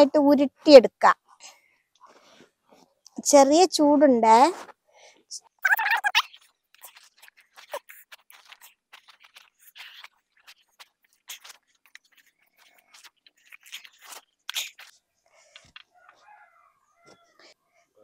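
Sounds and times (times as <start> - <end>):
hands kneading crunchy mixture: 6.3 - 15.0.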